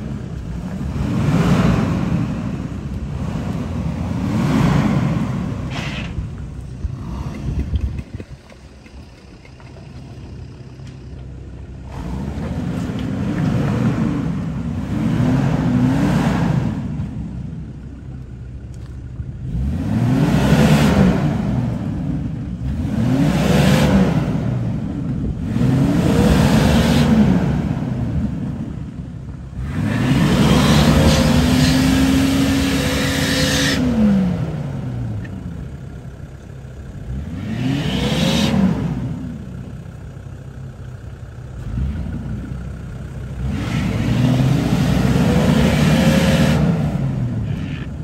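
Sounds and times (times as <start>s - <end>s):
car engine revving hard: 0.6s - 6.1s, 11.9s - 17.0s, 19.4s - 24.8s, 25.4s - 28.5s, 29.6s - 35.1s, 37.1s - 39.4s, 43.4s - 47.8s.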